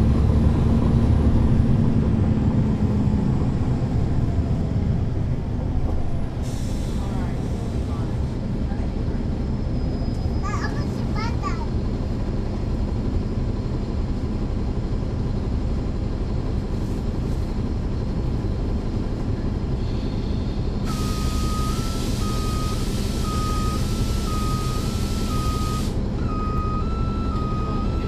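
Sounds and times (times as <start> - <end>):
bus diesel engine running: 0.0 - 28.0
alternating two-tone beeping: 21.0 - 28.0.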